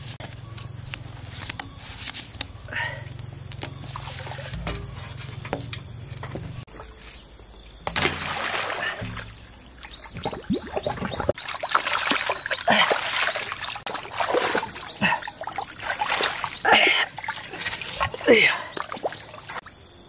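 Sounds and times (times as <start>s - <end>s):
water splashing in pond: 3.8s - 5.2s, 7.8s - 19.8s.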